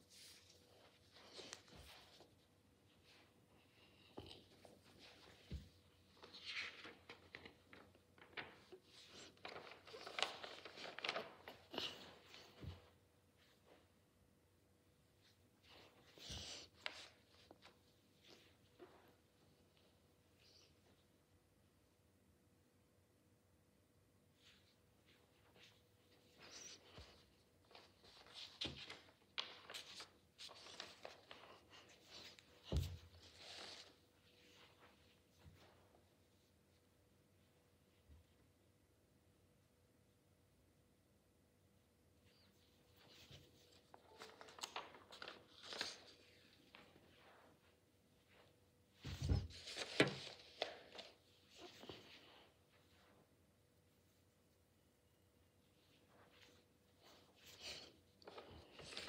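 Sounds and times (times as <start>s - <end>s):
paper rustling: 4.2s - 13.0s, 24.4s - 35.7s, 42.9s - 47.7s, 48.3s - 53.1s, 56.0s - 59.0s.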